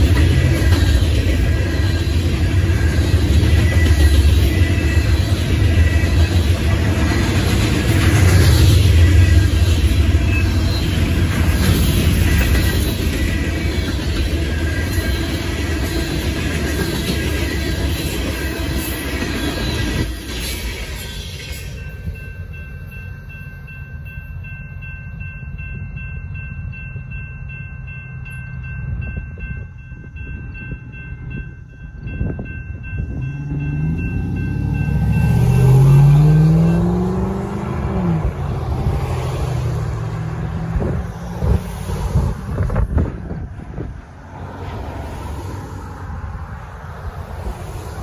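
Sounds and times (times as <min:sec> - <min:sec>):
road vehicles passing: 0:00.0 - 0:20.1, 0:32.7 - 0:48.0
railroad crossing bell ringing: 0:00.0 - 0:40.0
freight train rolling: 0:00.0 - 0:48.0
car engine revving: 0:33.3 - 0:40.5.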